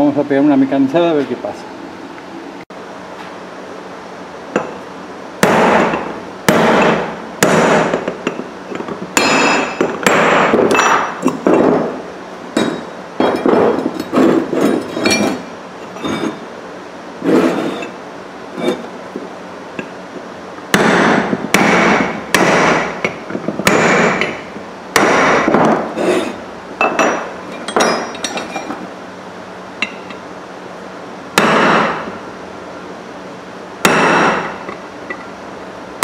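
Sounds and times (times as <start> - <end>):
hammer striking metal: 5.4 - 8.2, 9.2 - 11.9, 20.8 - 25.9, 31.4 - 32.2, 33.8 - 35.2.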